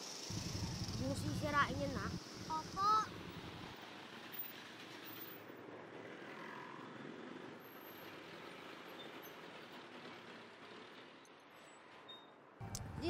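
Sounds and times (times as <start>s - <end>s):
faint traffic rumble: 0.2s - 8.9s
street hubbub: 0.3s - 3.9s.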